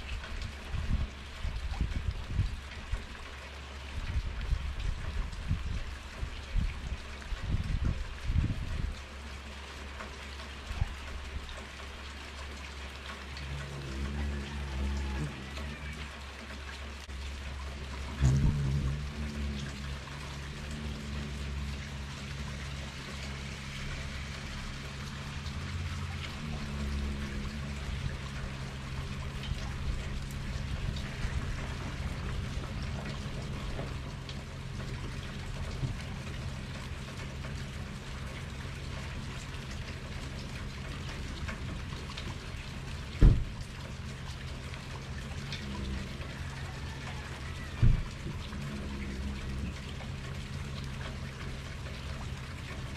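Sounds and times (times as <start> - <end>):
low steady hum: 0.0 - 52.9
rain pattering: 0.0 - 52.9
low thump: 43.2 - 43.5.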